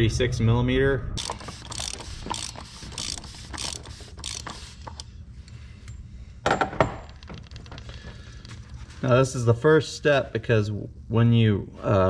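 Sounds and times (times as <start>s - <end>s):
ratchet clicking: 1.2s - 5.1s.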